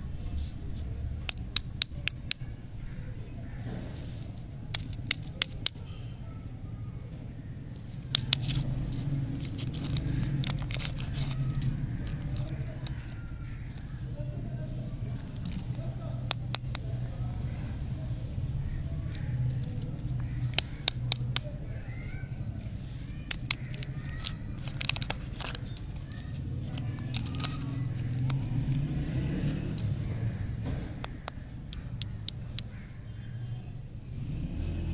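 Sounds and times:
lollipop wrapper crinkling: 0:04.0 - 0:05.8, 0:07.8 - 0:14.0, 0:15.1 - 0:16.9, 0:19.1 - 0:28.8, 0:31.0 - 0:32.8.

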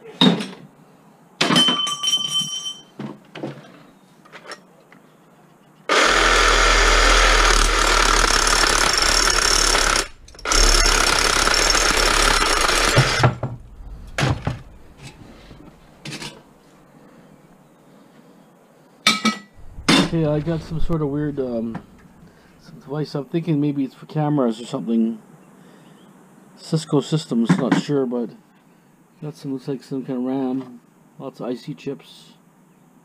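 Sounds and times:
reciprocating saw cutting metal pipe: 0:05.9 - 0:15.3
knocks: 0:10.3 - 0:15.2.

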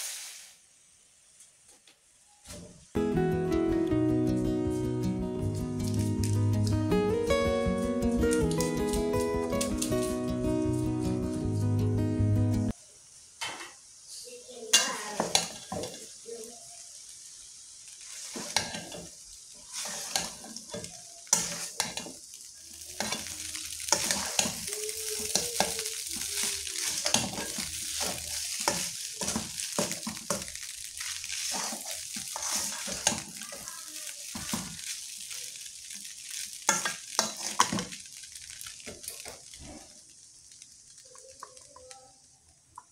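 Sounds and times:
food sizzling in a wok: 0:00.0 - 0:42.9
metal spatula scraping wok: 0:18.0 - 0:22.2, 0:23.0 - 0:33.6, 0:36.6 - 0:37.9.

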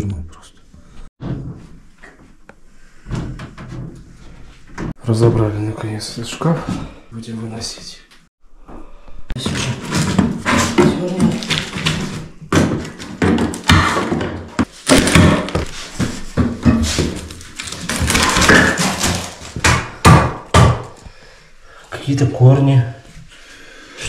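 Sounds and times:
wooden parts knocking and thudding: 0:03.0 - 0:05.0, 0:09.4 - 0:21.1.

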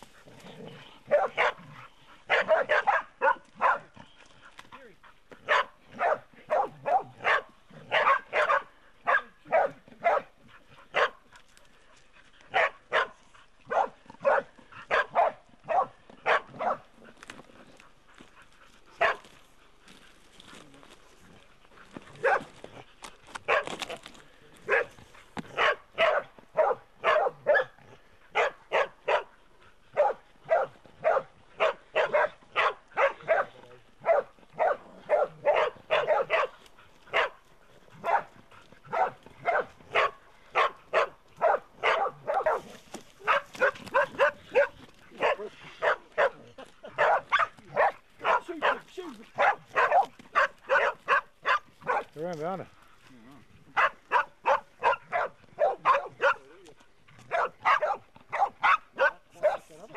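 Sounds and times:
dogs barking: 0:00.0 - 0:04.2, 0:05.2 - 0:11.6, 0:12.4 - 0:20.1, 0:21.8 - 0:24.0, 0:24.6 - 0:52.2, 0:53.6 - 0:59.9.

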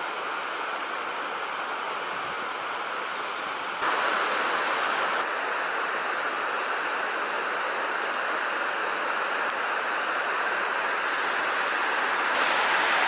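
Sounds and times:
water rushing over waterfall: 0:11.1 - 0:13.0.

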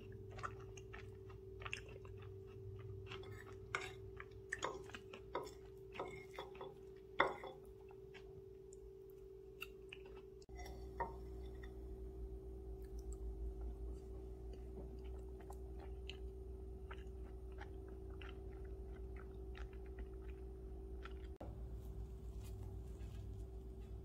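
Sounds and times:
soft chewing: 0:00.0 - 0:11.9, 0:12.6 - 0:24.0
low hum: 0:10.5 - 0:24.0.

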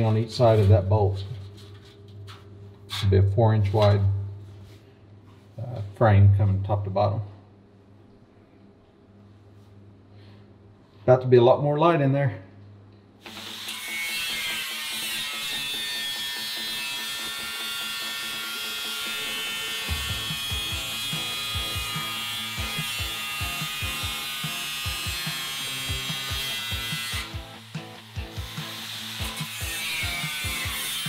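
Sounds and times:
angle grinder cutting steel: 0:13.2 - 0:31.0
background music with low beat: 0:17.7 - 0:31.0.

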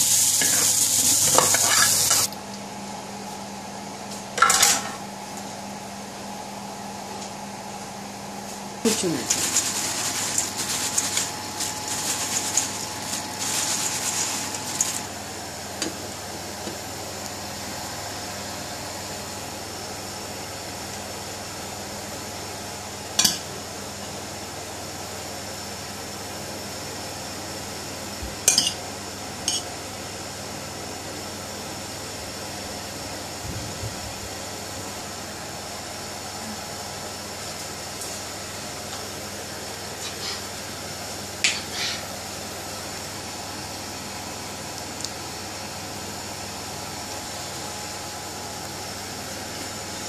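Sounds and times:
steady background hum: 0:00.0 - 0:50.0
paper towel rustling: 0:08.9 - 0:15.1.

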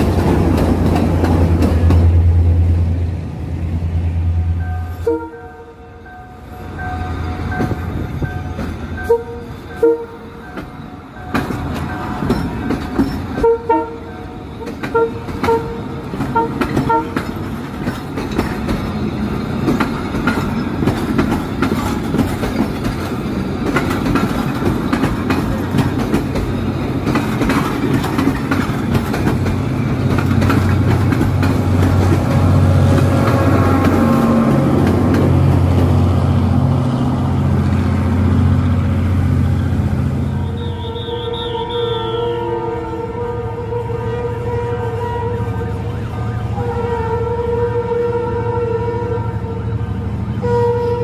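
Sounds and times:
train wheels clicking on rails: 0:00.0 - 0:03.0, 0:06.7 - 0:41.5
train horn toots: 0:04.5 - 0:10.6, 0:13.3 - 0:17.3, 0:32.2 - 0:34.7, 0:40.2 - 0:51.0.

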